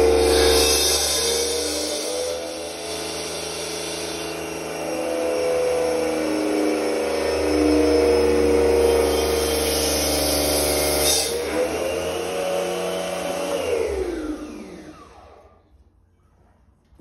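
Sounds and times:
electric pump motor whining: 0.0 - 1.1, 4.2 - 15.7
motor spinning down: 11.5 - 15.6.

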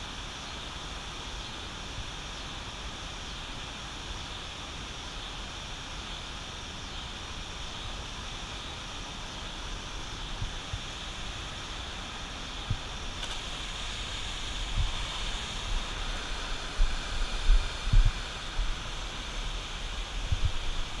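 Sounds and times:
turbulent water rushing: 7.3 - 21.0
wind thumps on microphone: 14.6 - 18.8, 20.2 - 21.0.

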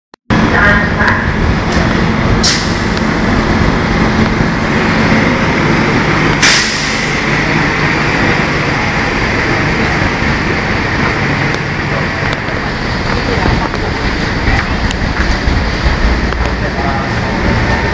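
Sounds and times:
short sharp hiss: 6.4 - 7.1.

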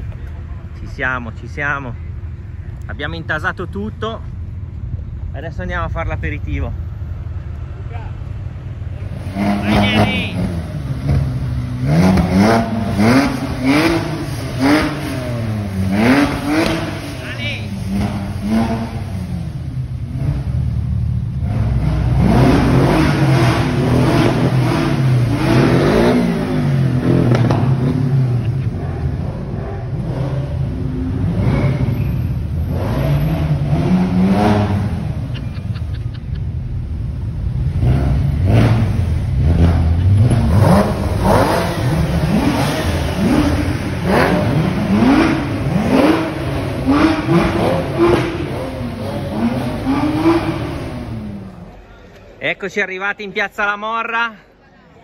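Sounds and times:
sports cars revving past: 9.0 - 51.9.

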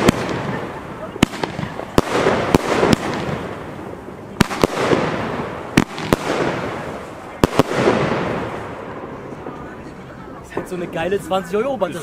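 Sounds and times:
firework shots banging: 0.0 - 9.6.

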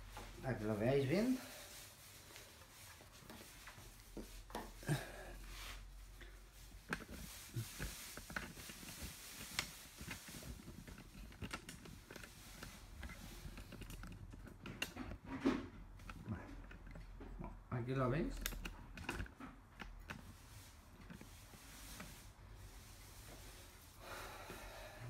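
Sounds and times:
small handling clicks: 18.4 - 20.3.

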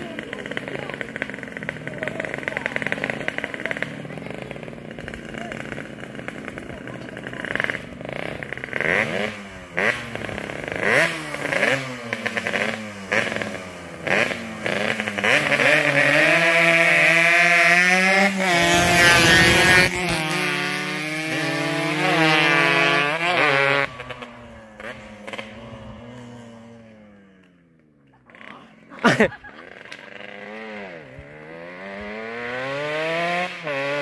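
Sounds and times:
motorcycle accelerating past: 0.0 - 34.0
two-stroke motorcycles revving: 0.0 - 34.0.

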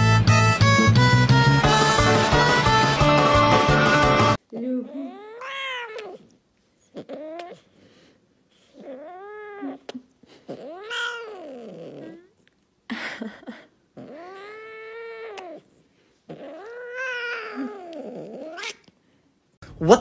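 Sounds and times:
cat meowing: 5.1 - 6.2, 16.3 - 18.8.

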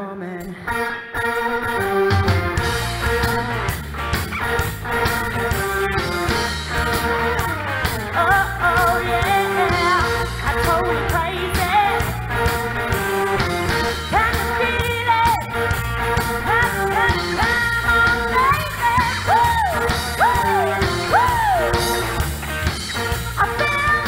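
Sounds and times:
woman singing: 0.0 - 0.9, 8.1 - 22.1, 23.3 - 24.0
live rock band playing: 0.4 - 24.0.

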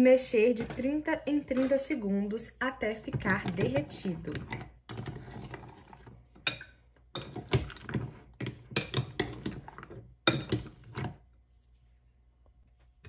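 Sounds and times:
metal spoon scraping ceramic bowl: 3.3 - 8.1.

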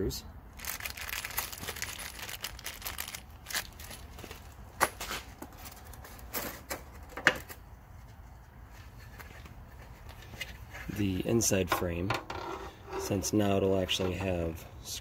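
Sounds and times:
screws rattling in plastic bag: 0.6 - 4.4
plastic crinkling: 0.6 - 4.6.

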